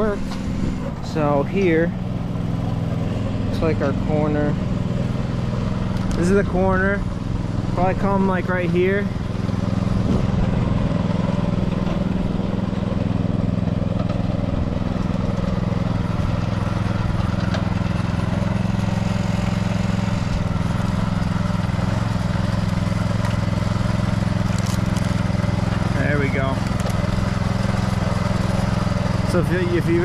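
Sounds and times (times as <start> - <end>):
small gas engine running: 0.0 - 30.0.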